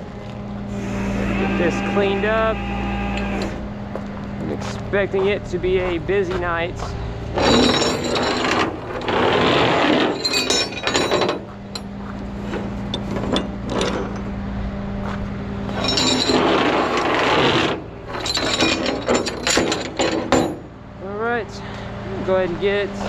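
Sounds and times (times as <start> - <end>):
truck engine idling: 0.0 - 10.0
metal hooks clinking on steel deck: 7.4 - 8.7, 10.1 - 12.0, 15.7 - 16.6, 18.1 - 20.7.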